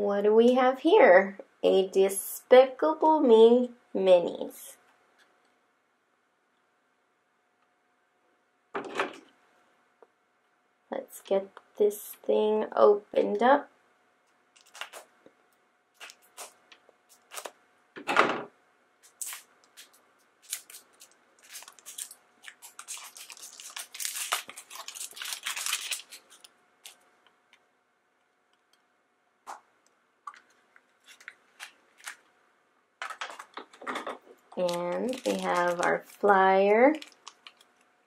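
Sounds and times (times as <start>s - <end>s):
plastic wrapper crinkling and tearing: 14.5s - 15.1s, 15.9s - 17.6s, 19.0s - 27.6s, 30.2s - 32.3s, 33.0s - 38.0s.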